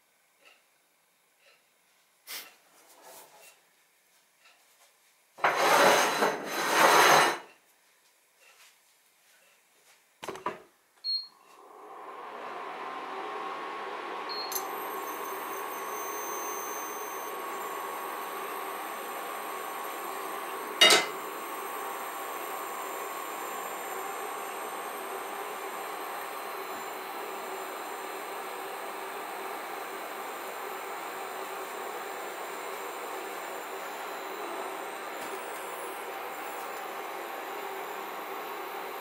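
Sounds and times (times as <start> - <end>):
induction cooker beep: 11.0 - 11.5, 12.7 - 39.0
cooling fan running: 11.6 - 39.0
high-pitched coil whine: 14.3 - 39.0.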